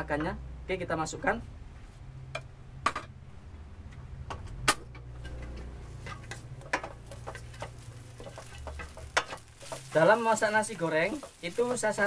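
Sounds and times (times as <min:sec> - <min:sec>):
spatula scraping metal wok: 0:05.1 - 0:12.0.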